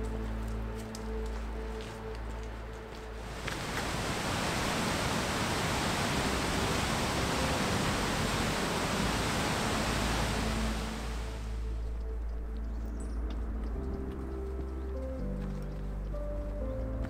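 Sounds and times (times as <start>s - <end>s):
roar of rushing white water: 3.2s - 11.7s.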